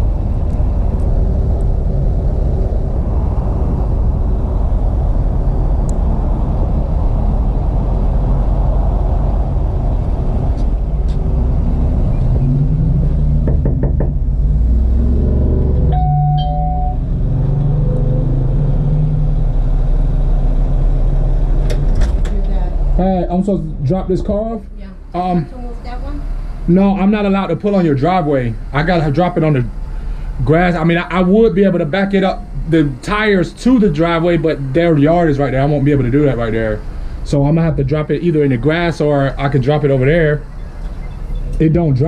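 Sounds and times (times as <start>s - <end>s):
knocks: 13.4s - 14.3s
brief beep-like tone: 15.9s - 17.0s
truck engine idling: 18.8s - 42.0s.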